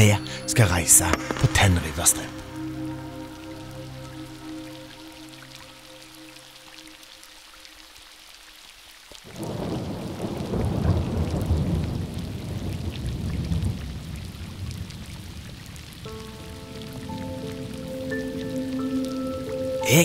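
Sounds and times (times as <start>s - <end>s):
rain falling on a river: 0.0s - 20.0s
thunder rumbling: 9.3s - 16.6s.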